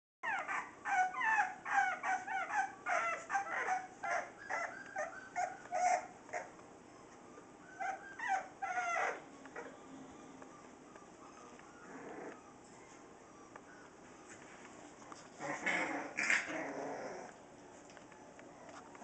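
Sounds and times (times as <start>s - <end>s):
puppies yipping and whining: 0.2s - 19.0s.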